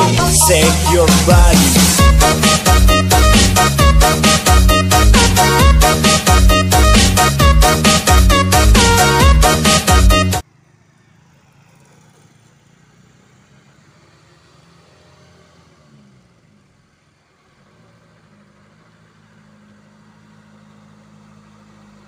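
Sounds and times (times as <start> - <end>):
truck engine running: 0.0 - 10.4, 16.5 - 22.0.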